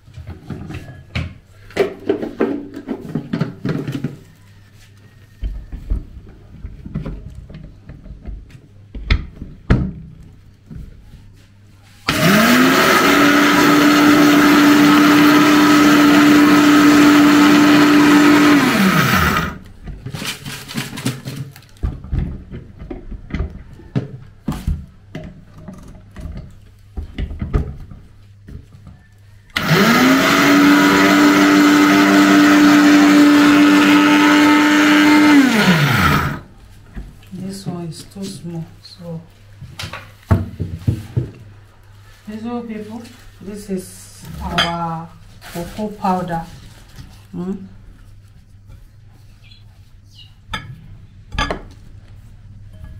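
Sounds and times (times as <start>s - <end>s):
blender motor grinding: 12.1s - 19.6s, 29.5s - 36.5s.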